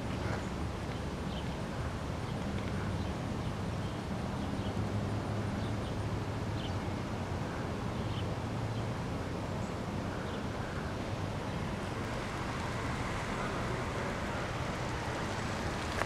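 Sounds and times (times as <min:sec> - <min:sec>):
steady low hum: 0:04.9 - 0:16.0.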